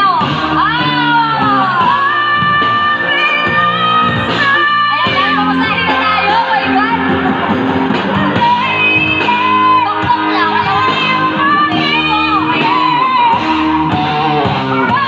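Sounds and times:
karaoke backing track: 0.0s - 15.0s
person singing into microphone: 0.0s - 15.0s.

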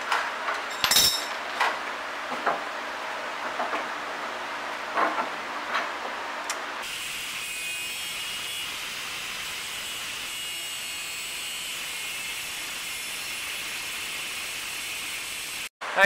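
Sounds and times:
angle grinder cutting steel: 6.8s - 15.7s.

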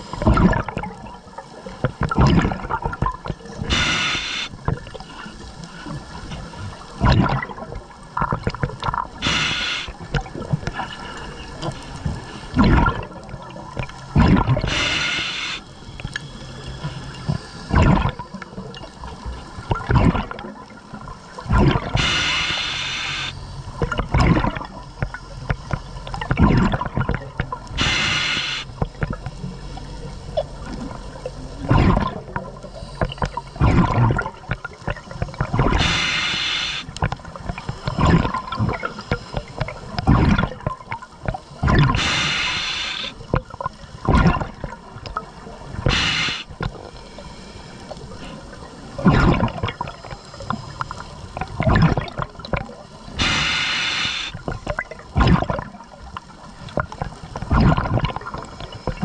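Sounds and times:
exhaled bubbles gushing: 0.0s - 15.7s, 17.7s - 29.5s, 30.2s - 47.0s, 47.9s - 59.0s
diver breathing through regulator: 3.7s - 4.6s, 9.2s - 10.0s, 14.6s - 18.2s, 21.7s - 23.6s, 27.8s - 28.8s, 35.6s - 37.0s, 41.8s - 43.3s, 45.8s - 48.6s, 53.2s - 54.4s.

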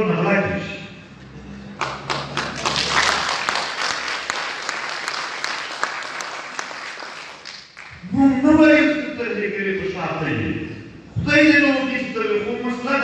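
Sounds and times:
audience applauding: 1.7s - 8.0s.

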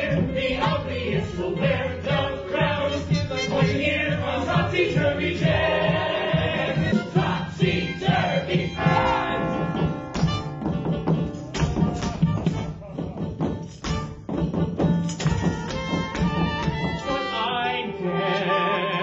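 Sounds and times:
ensemble chorus singing: 0.0s - 10.1s
instrumental accompaniment: 0.0s - 19.0s.

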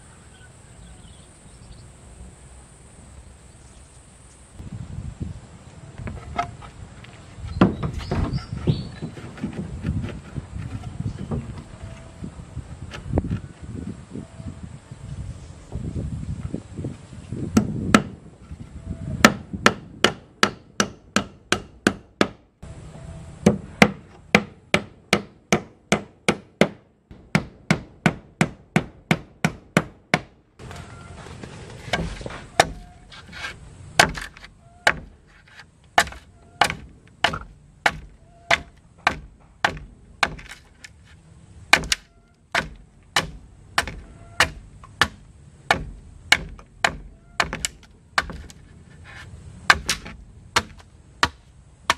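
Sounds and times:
machete chopping wood: 31.8s - 40.9s, 41.7s - 48.6s, 49.6s - 51.9s
hammer driving nails into wood: 34.0s - 40.9s, 41.7s - 48.6s, 49.7s - 51.9s.

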